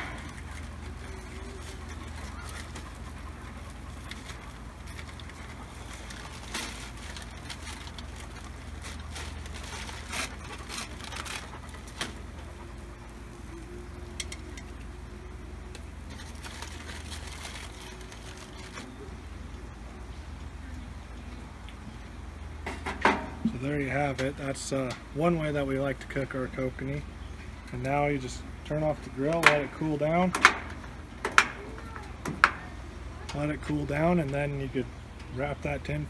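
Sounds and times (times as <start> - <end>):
sharp clicks and crackles: 0.0 - 19.0
gas burner rumble: 0.0 - 36.0.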